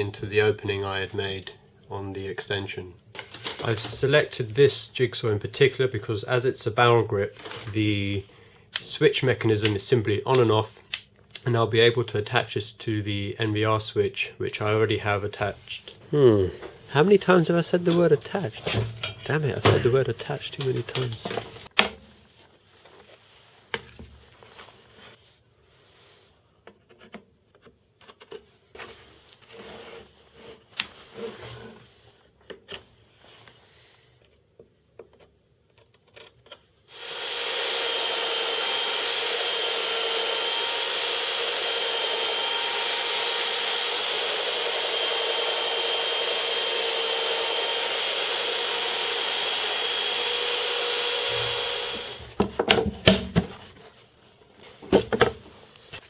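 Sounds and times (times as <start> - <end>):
belt sander whine: 36.9 - 52.3
plastic plate knocks and clatter: 52.4 - 53.5.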